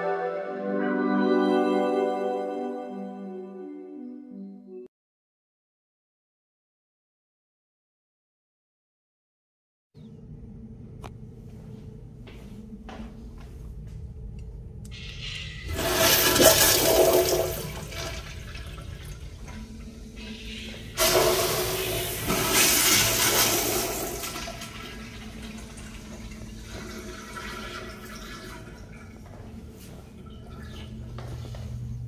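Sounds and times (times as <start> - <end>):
urinal flushing: 14.9 - 32.0.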